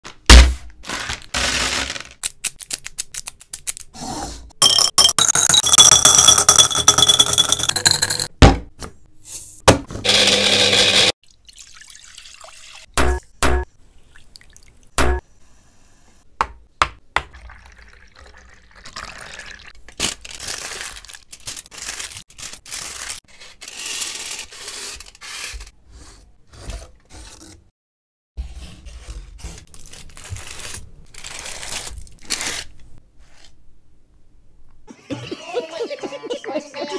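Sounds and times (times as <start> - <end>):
liquid pouring into a bowl: 11.2 - 12.9, 17.3 - 19.7
wrappers handled: 19.9 - 23.2.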